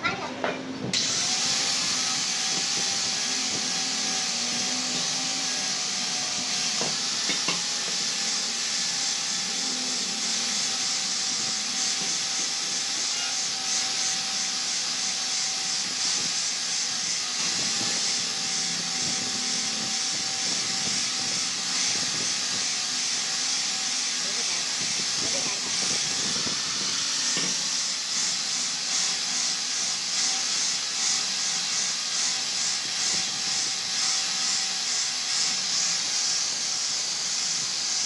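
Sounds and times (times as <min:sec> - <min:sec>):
angle grinder grinding steel pipe: 0:00.8 - 0:38.0.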